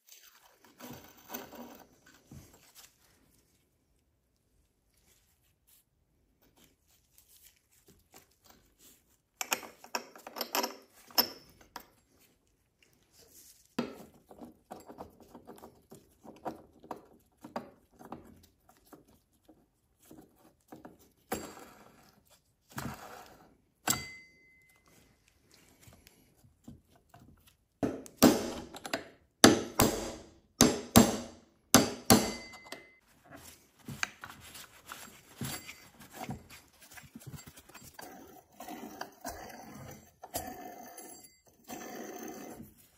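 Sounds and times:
parts and tools handled on workbench: 0.0 - 29.4, 31.6 - 42.9
short metallic ring: 23.9 - 24.8, 32.3 - 33.0.

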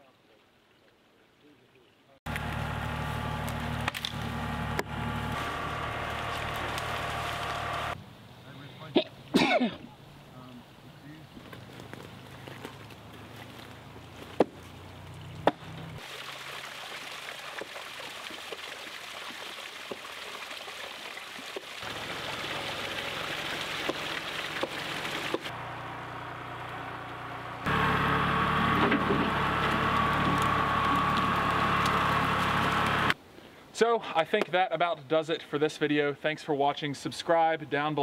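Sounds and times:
creek trickling: 0.0 - 9.3, 9.9 - 25.7
log dragging: 2.3 - 8.0, 27.6 - 33.2
tractor engine running: 2.3 - 8.0, 21.8 - 33.2.

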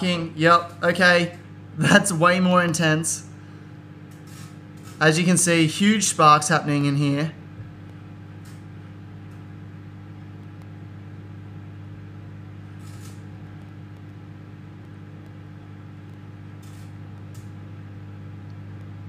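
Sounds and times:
microwave oven humming: 0.0 - 19.0
foil arcing crackles: 12.6 - 17.7.

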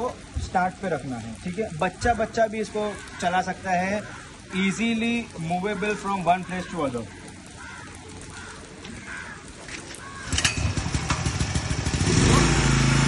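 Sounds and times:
generator engine running: 10.3 - 13.0.

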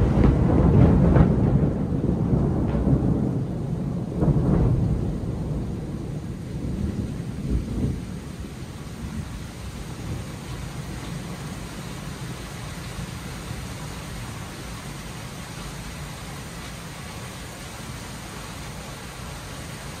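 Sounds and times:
steady rain: 0.0 - 20.0
thunder rumbling: 0.0 - 20.0.

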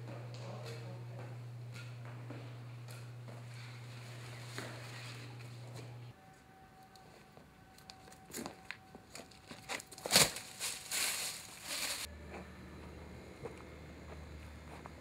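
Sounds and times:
low outdoor hum: 0.0 - 15.0
twigs and leaves crackling: 7.8 - 12.1.

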